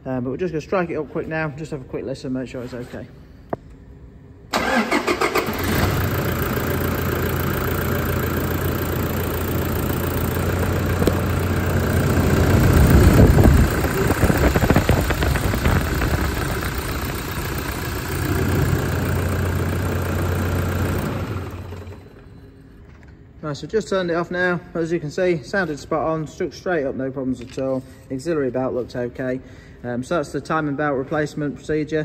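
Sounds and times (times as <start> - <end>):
diesel engine idling: 4.6 - 22.1.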